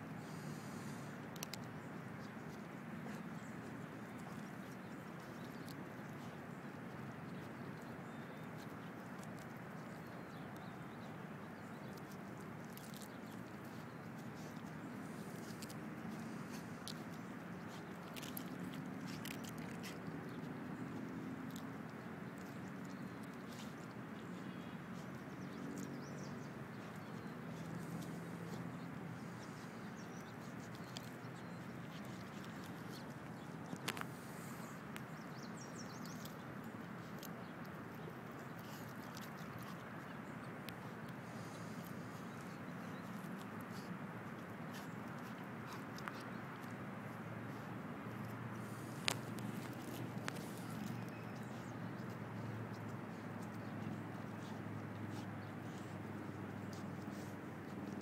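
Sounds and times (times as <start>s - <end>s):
outdoor background hiss: 0.0s - 2.1s
dog chewing on bone: 1.3s - 11.0s, 11.7s - 58.0s.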